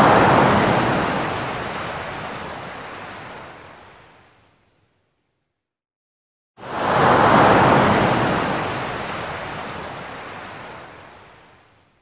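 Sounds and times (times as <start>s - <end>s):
ocean wave crashing on beach: 0.0s - 3.3s, 6.6s - 11.0s.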